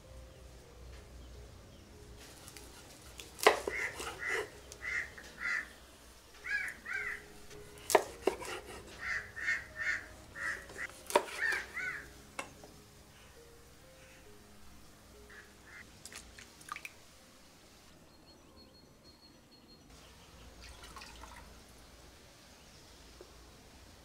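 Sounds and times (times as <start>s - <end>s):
knife chopping fish on board: 2.5s - 4.5s, 7.8s - 9.0s, 10.7s - 11.7s.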